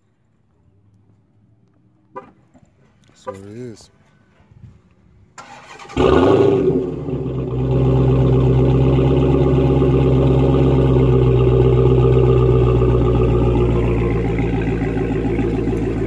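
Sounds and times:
car engine starting and idling: 5.3 - 16.0.

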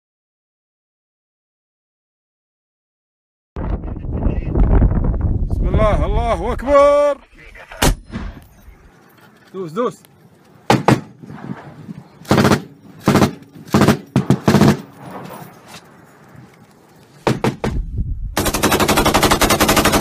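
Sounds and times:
single gunshots: 7.8 - 8.4, 10.7 - 11.2
automatic rifle fire burst: 12.2 - 14.9.

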